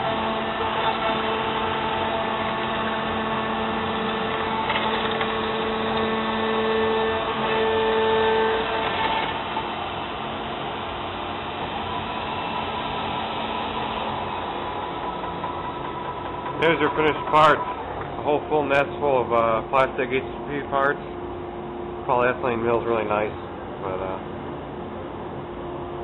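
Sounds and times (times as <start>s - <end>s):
cnc router whining: 0.0s - 26.0s
bit cutting plastic: 4.0s - 9.6s.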